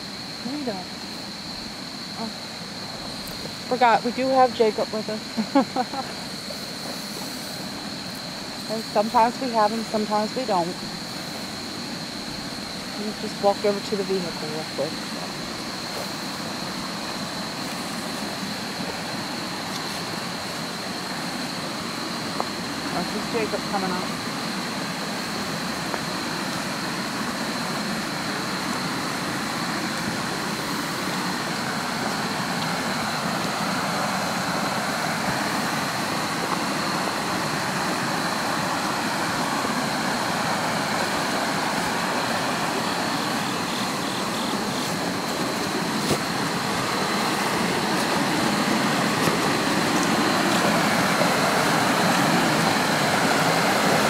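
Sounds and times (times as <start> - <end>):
river water rushing: 14.9 - 54.0.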